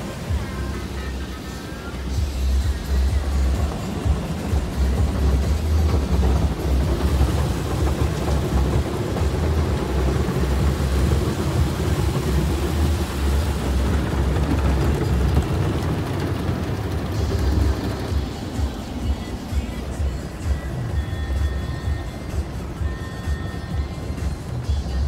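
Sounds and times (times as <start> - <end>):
water spraying on car: 0.0 - 25.0
deep rumble: 2.2 - 21.4.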